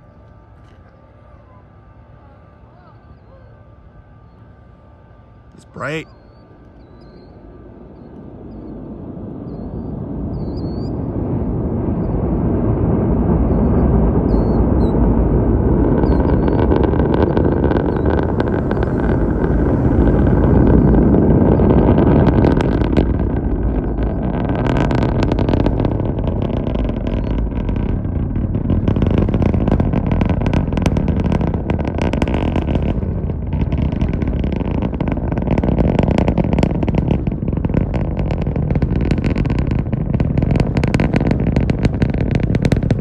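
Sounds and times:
deep rocket engine rumble: 0:00.0 - 0:43.0
loud sharp crackling: 0:15.8 - 0:43.0.

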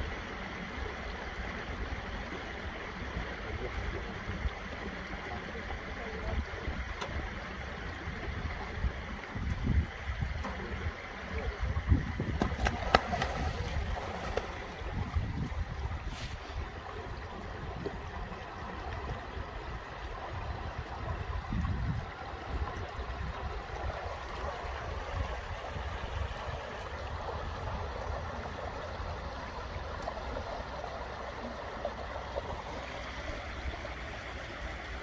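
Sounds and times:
running water trickling: 0:00.0 - 0:35.0
wind rumble on microphone: 0:08.0 - 0:24.0.

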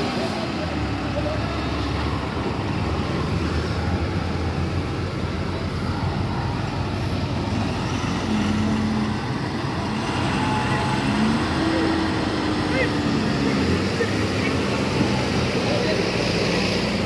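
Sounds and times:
lorry and bus engines rumbling: 0:00.0 - 0:17.0.

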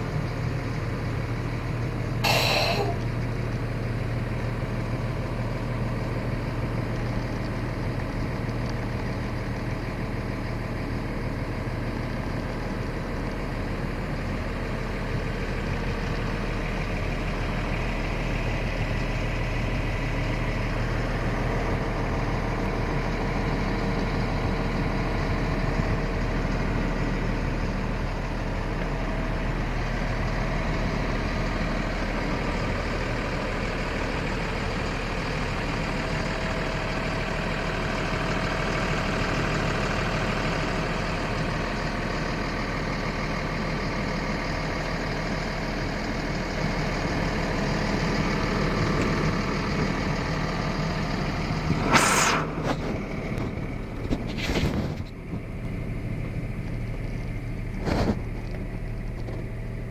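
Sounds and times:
diesel truck engine idling: 0:00.0 - 0:59.9
loud bursts of noise: 0:02.2 - 0:03.1, 0:51.8 - 0:52.6.

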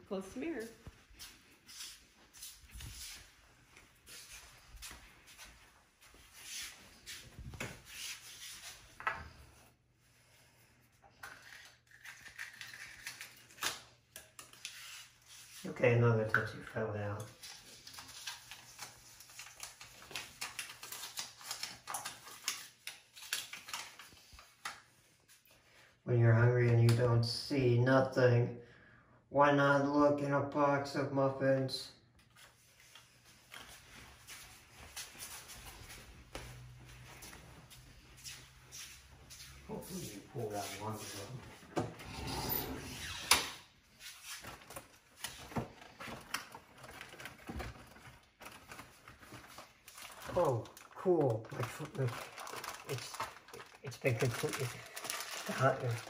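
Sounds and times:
packages rustling: 0:17.1 - 0:25.7, 0:43.9 - 0:56.0
paper crinkling: 0:17.2 - 0:25.6, 0:43.9 - 0:56.0.

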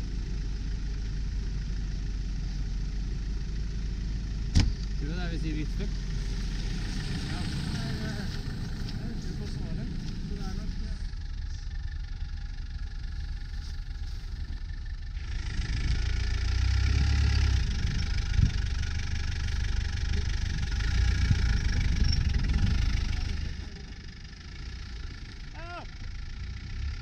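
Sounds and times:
engine running under load: 0:00.0 - 0:27.0
thump: 0:04.5 - 0:04.8.

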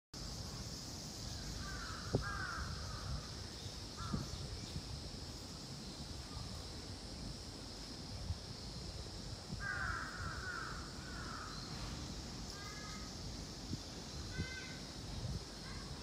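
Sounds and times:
cicadas chorus: 0:00.2 - 0:16.0
crows cawing: 0:01.6 - 0:03.2, 0:09.6 - 0:11.6.

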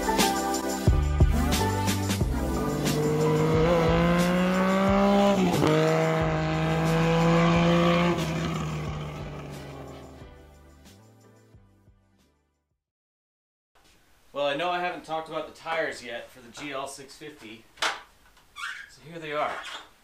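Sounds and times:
music: 0:00.0 - 0:12.8
engine revving: 0:02.2 - 0:10.2.

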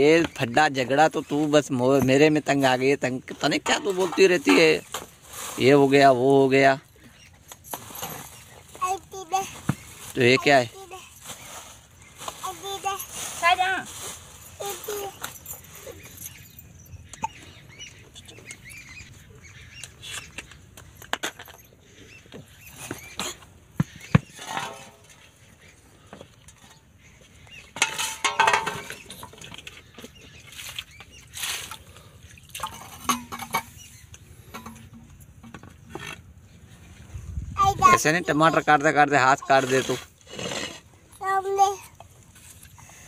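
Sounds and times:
steel plates clinking: 0:24.4 - 0:25.2, 0:27.8 - 0:29.4, 0:32.6 - 0:33.8.

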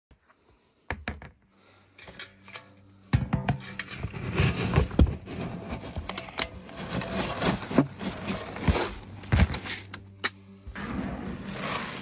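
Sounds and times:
pellets clattering in metal pail: 0:03.2 - 0:10.0, 0:11.2 - 0:12.0.

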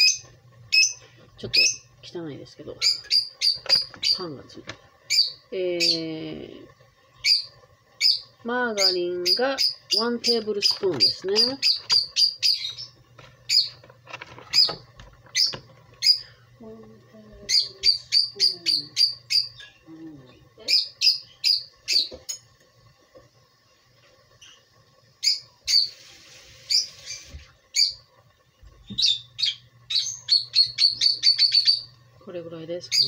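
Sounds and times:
small bird chirping: 0:00.0 - 0:01.9, 0:02.7 - 0:04.4, 0:05.1 - 0:06.5, 0:07.1 - 0:13.8, 0:14.4 - 0:16.4, 0:17.4 - 0:22.4, 0:24.4 - 0:26.0, 0:26.6 - 0:28.1, 0:28.8 - 0:32.0, 0:32.8 - 0:33.0.

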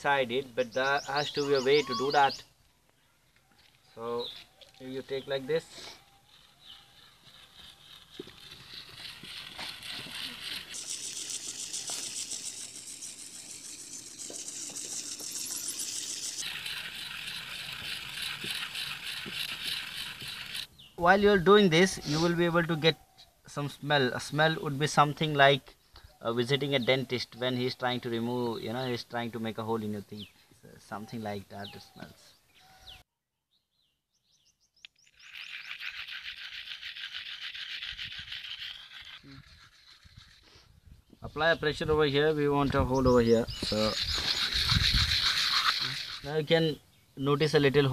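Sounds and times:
shell scraping on stone: 0:04.7 - 0:20.7, 0:35.0 - 0:40.6, 0:43.6 - 0:46.4.

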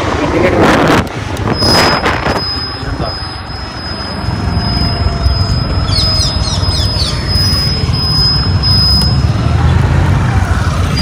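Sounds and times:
wind buffeting microphone: 0:00.0 - 0:03.2
scooter engine and road noise: 0:00.0 - 0:11.0
high falling squeaks: 0:01.5 - 0:09.3.

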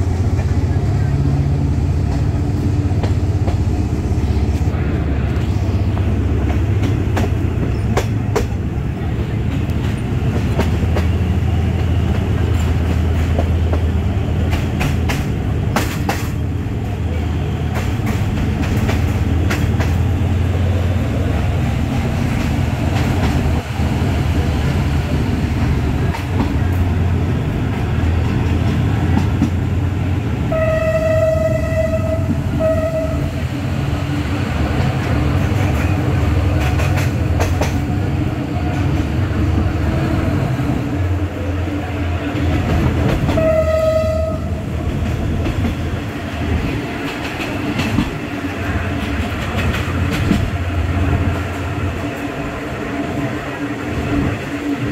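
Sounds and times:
diesel locomotive engine drone: 0:00.0 - 0:54.9
wheels clicking over rail joints: 0:05.9 - 0:20.2, 0:25.1 - 0:29.8, 0:34.6 - 0:39.7, 0:42.2 - 0:52.4
locomotive horn blasts: 0:30.5 - 0:33.4, 0:43.3 - 0:44.6.

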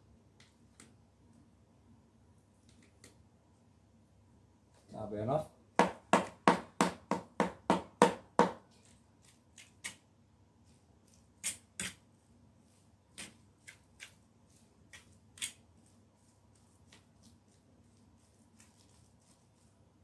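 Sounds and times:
fork mashing potatoes: 0:08.6 - 0:10.0, 0:10.6 - 0:20.0.

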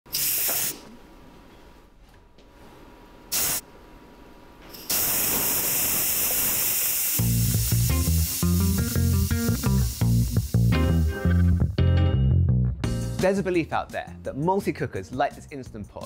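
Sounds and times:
pressure valve hissing steam: 0:00.1 - 0:00.8, 0:03.3 - 0:03.6, 0:04.8 - 0:10.8
music: 0:07.2 - 0:16.0.

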